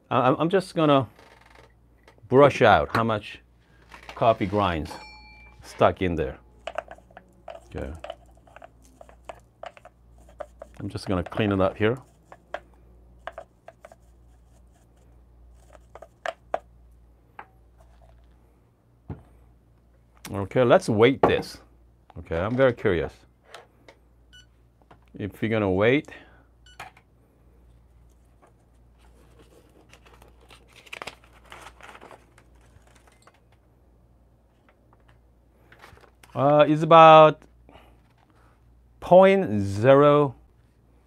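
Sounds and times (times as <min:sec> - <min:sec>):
paper crinkling and rustling: 0:28.4 - 0:33.6.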